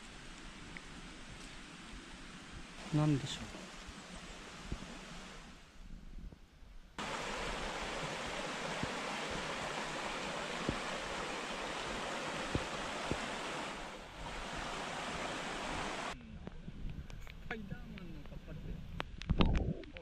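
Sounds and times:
stream running over rocks: 0.0 - 5.6, 7.0 - 16.2.

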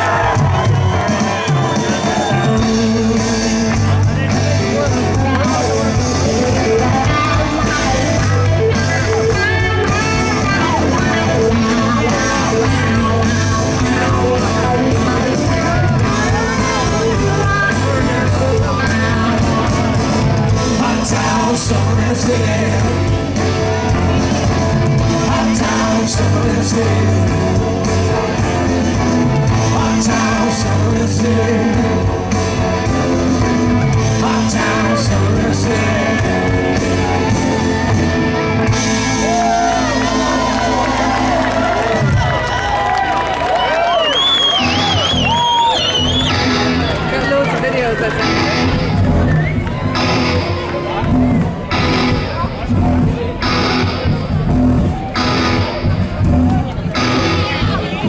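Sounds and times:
electric guitar: 0.0 - 58.0
rock band playing: 0.0 - 58.0
person singing: 2.3 - 23.9, 24.9 - 37.7.

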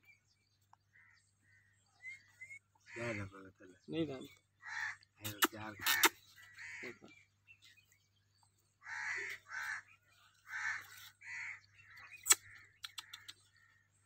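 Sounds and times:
crows cawing: 0.9 - 1.8, 2.8 - 3.5, 4.6 - 7.2, 8.8 - 13.9
sharp click: 5.2 - 6.2.

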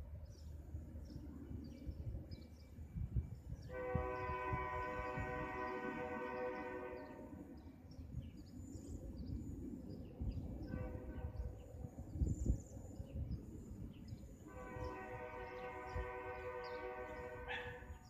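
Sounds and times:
locomotive air horn blasts: 3.6 - 7.4, 10.7 - 11.5, 14.5 - 17.9.

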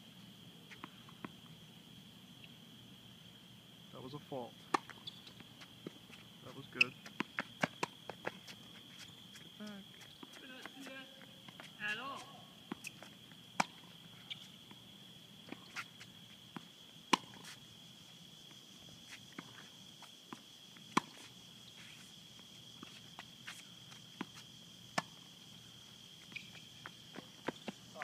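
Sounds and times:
shoe scuffs: 4.9 - 13.2, 21.0 - 22.2
tennis ball struck by rackets: 12.7 - 13.8, 16.6 - 17.5.

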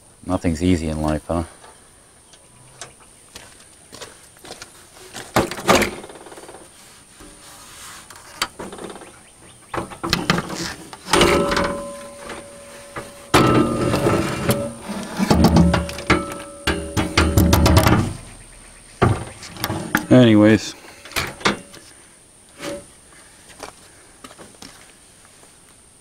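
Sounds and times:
clattering and scraping: 5.0 - 18.4, 19.0 - 20.3, 20.9 - 21.9, 22.5 - 22.9
plastic grille knocking: 11.2 - 18.2.

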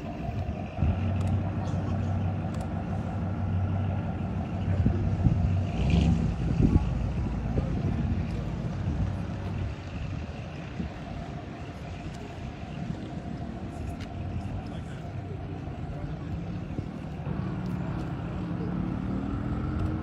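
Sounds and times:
cars driving slowly past: 0.0 - 20.0.

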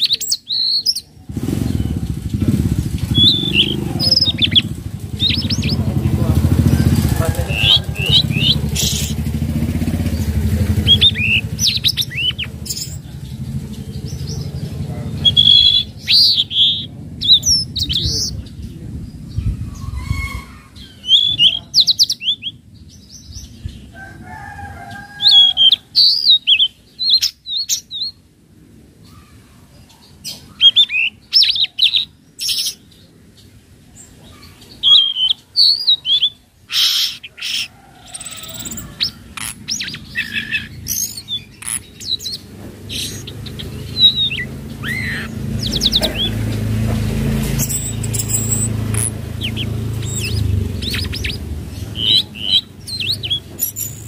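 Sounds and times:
bird singing whistled notes: 0.0 - 6.0, 6.8 - 18.4, 19.8 - 22.6, 34.8 - 46.4, 47.5 - 54.0.

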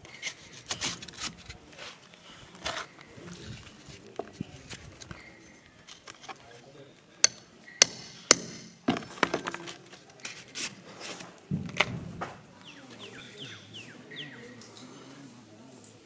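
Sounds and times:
hammer striking metal pin: 7.2 - 8.8
bird chirping: 12.6 - 14.9.

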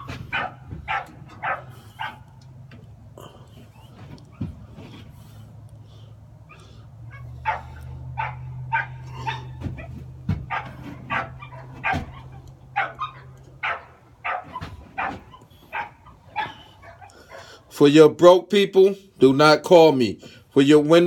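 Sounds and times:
puppy yipping: 0.0 - 2.3, 6.5 - 17.5.

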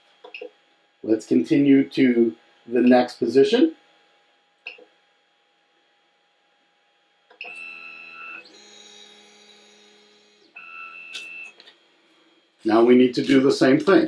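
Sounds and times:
stepper motors whining: 7.4 - 11.7.

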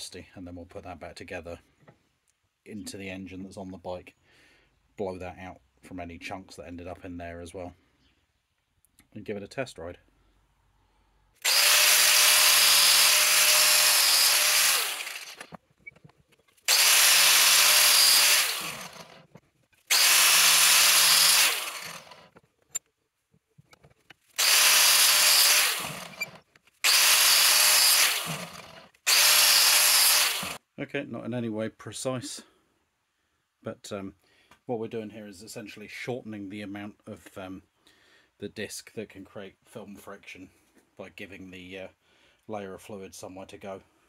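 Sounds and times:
angle grinder cutting: 11.4 - 15.6, 16.7 - 19.3, 19.9 - 22.3, 24.4 - 30.6.

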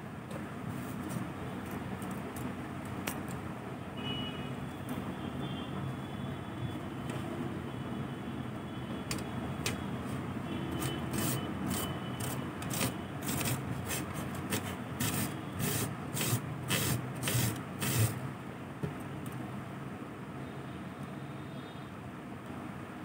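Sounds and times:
carrot grated on metal grater: 11.1 - 18.2.

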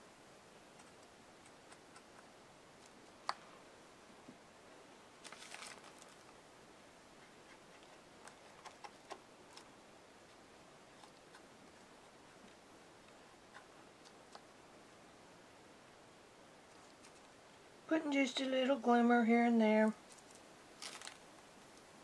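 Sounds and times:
rustle and clatter: 5.2 - 6.4, 16.6 - 17.6, 20.0 - 21.9.

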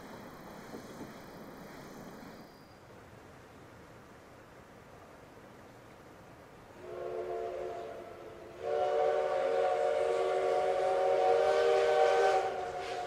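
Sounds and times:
steam locomotive whistle: 6.8 - 13.0.

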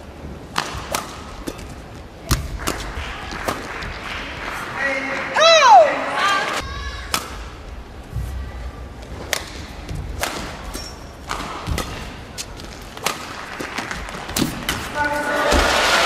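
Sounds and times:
racket hitting shuttlecock: 0.5 - 3.7, 7.0 - 7.6, 9.2 - 15.9.

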